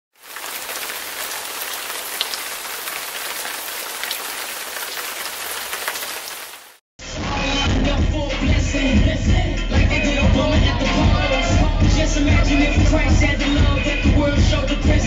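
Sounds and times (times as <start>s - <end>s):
steady rain falling: 0.1s - 6.8s.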